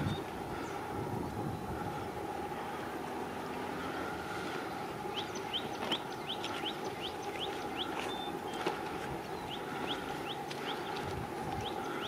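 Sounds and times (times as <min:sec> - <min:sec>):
background rumble: 0:00.0 - 0:12.0
bird chirping: 0:05.0 - 0:11.0.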